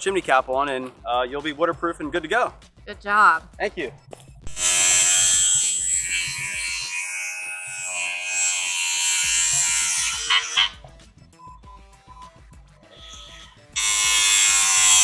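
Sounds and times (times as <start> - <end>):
power tool cutting metal: 4.5 - 10.8, 13.4 - 15.0.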